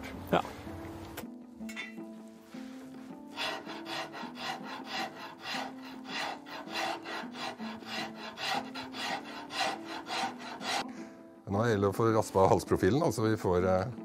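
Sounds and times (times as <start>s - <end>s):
rasp scraping wood: 3.3s - 10.8s.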